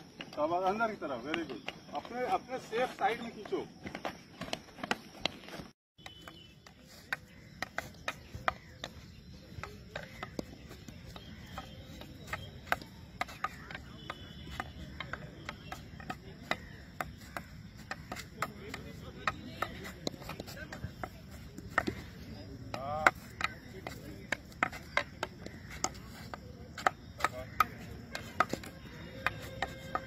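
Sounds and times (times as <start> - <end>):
hockey stick tapping a ball: 6.0 - 21.1, 22.7 - 30.0.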